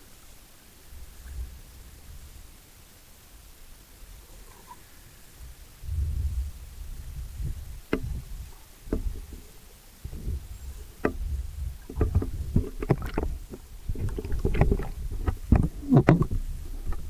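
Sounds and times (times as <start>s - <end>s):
underwater rumble of water: 0.0s - 17.0s
sharp clicks and pops: 11.9s - 17.0s.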